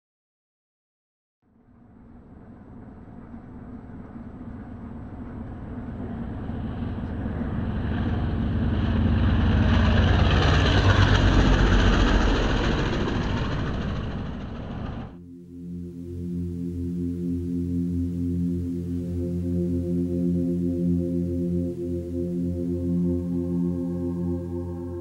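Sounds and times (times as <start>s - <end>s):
floatplane engine and propeller: 1.5s - 15.2s.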